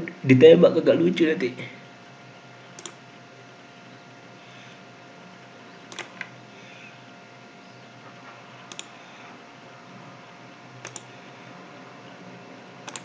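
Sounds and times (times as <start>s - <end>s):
faint steady hum: 0.0s - 13.0s
computer mouse clicks: 2.8s - 3.0s, 5.9s - 6.3s, 8.7s - 9.0s, 10.8s - 11.1s.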